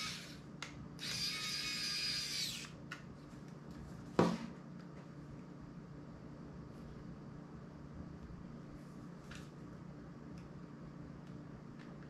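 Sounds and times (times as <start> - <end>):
electric screwdriver motor whine: 0.0 - 0.4, 1.0 - 2.8.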